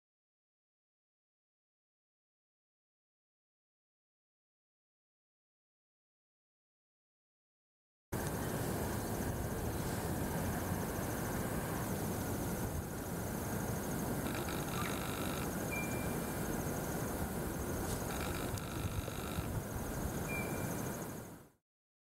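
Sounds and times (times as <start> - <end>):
fast insect trill: 10.6 - 21.5
frogs calling: 10.7 - 21.4.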